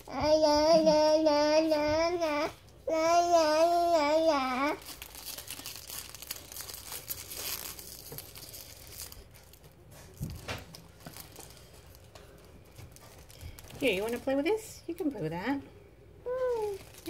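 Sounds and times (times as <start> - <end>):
toddler singing: 0.0 - 4.8
crinkling and rustling: 4.4 - 15.2, 16.3 - 17.0.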